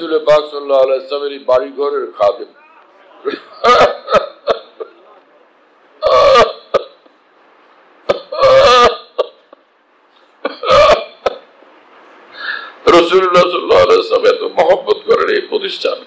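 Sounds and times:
man sobbing: 3.2s - 5.0s, 8.1s - 9.4s, 10.5s - 11.4s.

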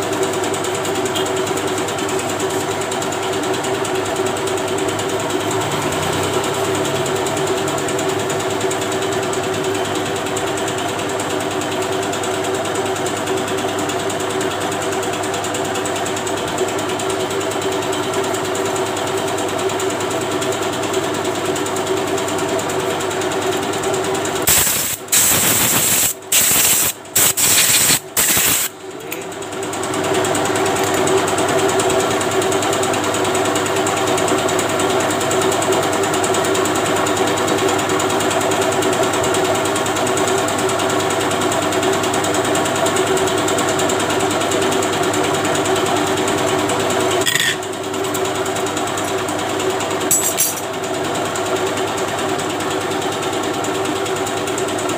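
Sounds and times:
hissing bursts: 24.5s - 28.7s.

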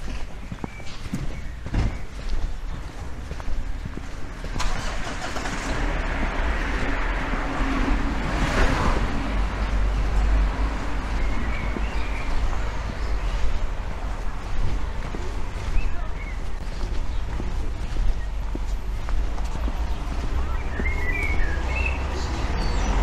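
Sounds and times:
car passing by: 4.6s - 13.5s.

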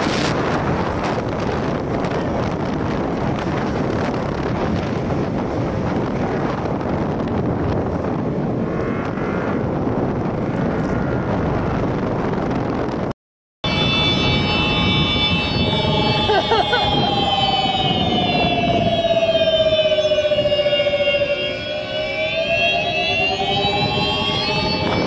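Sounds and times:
road noise: 0.0s - 25.0s
wind rushing over microphone: 0.0s - 25.0s
steady high whine: 13.6s - 25.0s.

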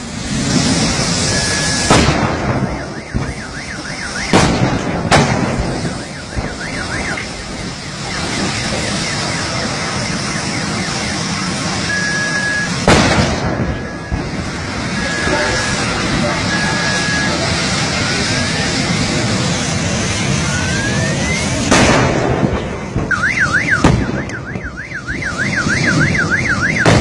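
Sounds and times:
fire burning: 0.0s - 27.0s
gas cylinders exploding: 0.0s - 27.0s
car alarm warbling: 2.6s - 4.4s, 5.6s - 12.8s, 13.6s - 18.7s, 23.0s - 27.0s.

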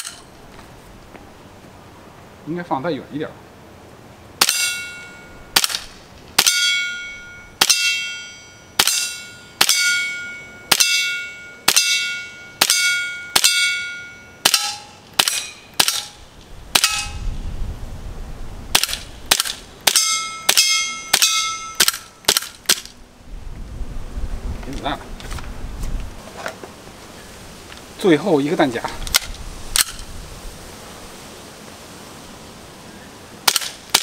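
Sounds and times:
airsoft pistol shots: 5.6s - 6.6s, 14.4s - 17.2s, 18.7s - 22.9s, 33.4s - 34.0s.

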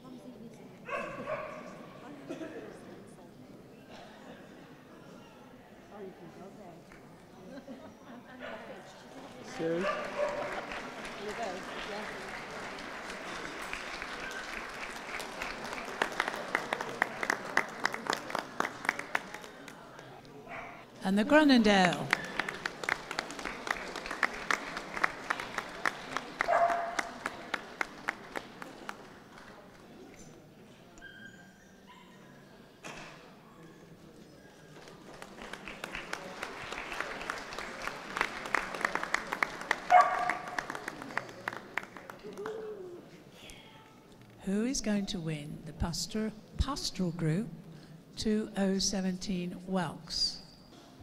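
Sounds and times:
audience applauding: 9.3s - 20.1s, 21.3s - 29.9s, 34.7s - 43.0s.

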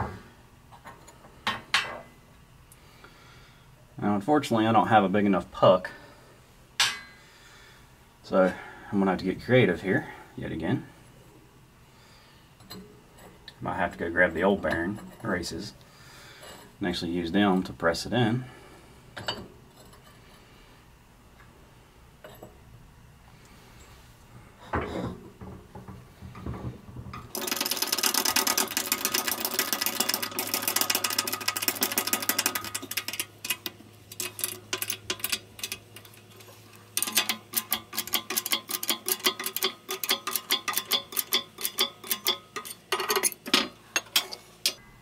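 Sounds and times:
knocks of metal parts: 37.0s - 44.8s.

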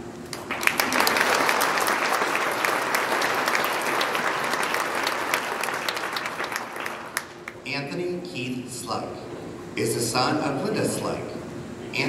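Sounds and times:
audience applauding: 0.3s - 7.6s.

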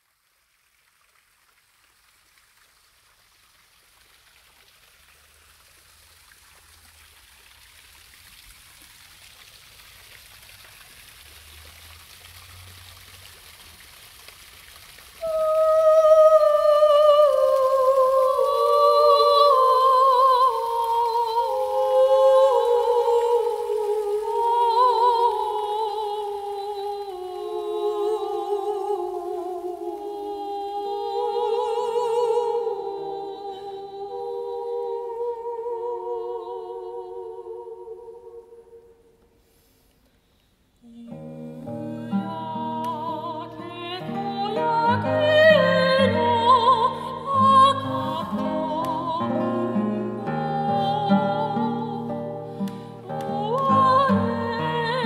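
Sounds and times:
faint steady hiss: 0.0s - 55.0s.

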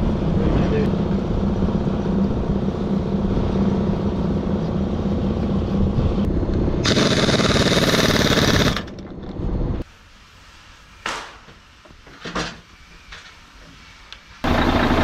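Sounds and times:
machine motor humming: 14.4s - 15.0s.

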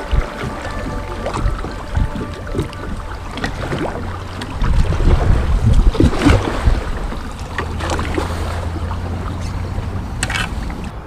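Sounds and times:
paddle splashing in water: 0.0s - 11.0s
wind rumble on microphone: 0.0s - 11.0s.

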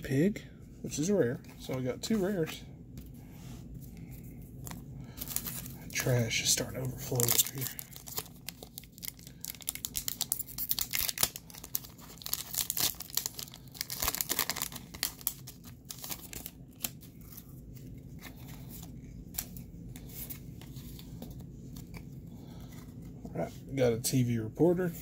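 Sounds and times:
foil wrapper crinkling: 4.6s - 19.6s.

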